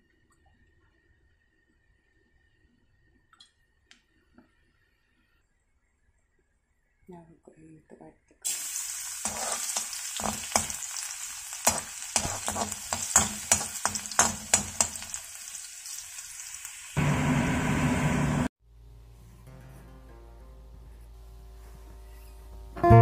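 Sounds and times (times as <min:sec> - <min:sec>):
garlic sizzling in hot oil: 0:08.4 - 0:17.6
metal spatula scraping a pan: 0:09.2 - 0:15.1
quiet acoustic guitar music: 0:18.7 - 0:23.0.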